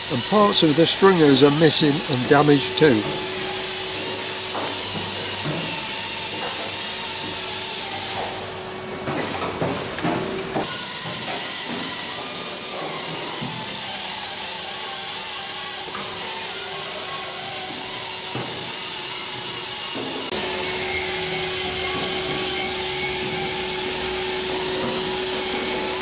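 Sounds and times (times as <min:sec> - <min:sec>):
vacuum cleaner suction hiss: 0:00.0 - 0:08.5, 0:20.4 - 0:26.0.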